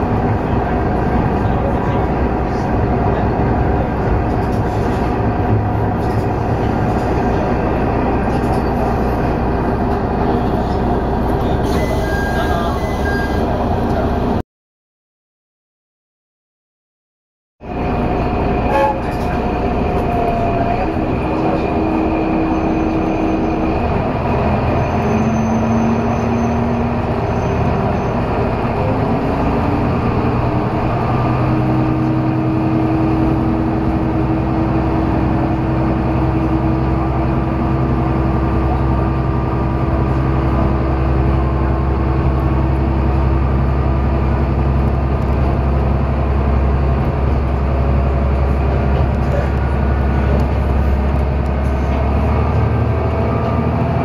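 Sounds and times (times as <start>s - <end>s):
diesel railbus engine rumbling: 0.0s - 14.4s, 17.6s - 54.0s.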